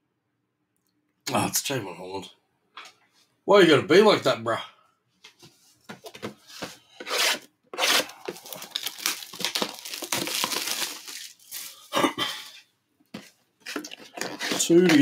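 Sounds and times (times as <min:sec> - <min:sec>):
plastic shrink wrap tearing: 0:07.8 - 0:11.8, 0:13.6 - 0:15.0
plastic crumpling: 0:07.8 - 0:11.9, 0:13.2 - 0:15.0.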